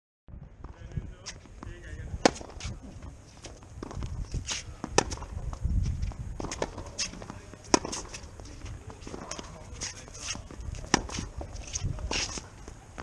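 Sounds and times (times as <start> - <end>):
quick footsteps on court: 0.6 - 13.0
racket striking tennis ball: 2.2 - 5.3, 6.0 - 12.5.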